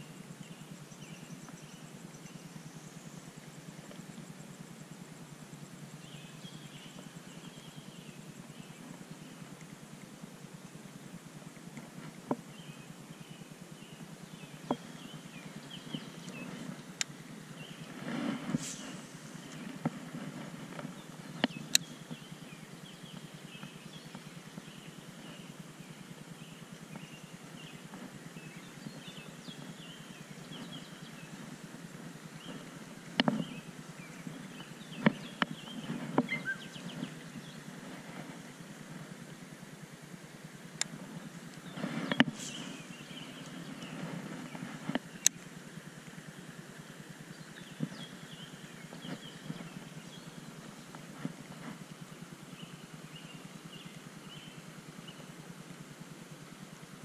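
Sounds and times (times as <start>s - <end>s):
low outdoor rumble: 0.0s - 57.0s
faint bird chirps: 12.4s - 17.9s, 20.8s - 37.8s, 41.1s - 55.4s.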